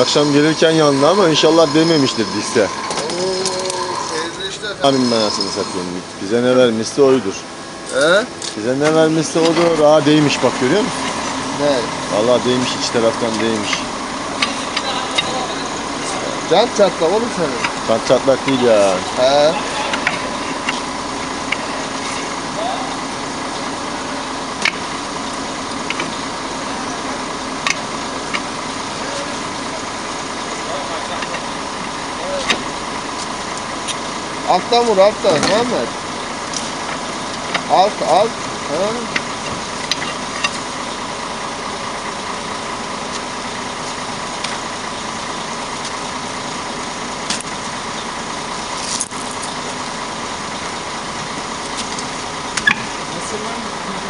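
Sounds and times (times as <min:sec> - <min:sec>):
engine idling: 0:00.0 - 0:54.0
steel bar striking wheel hub: 0:52.6 - 0:53.0.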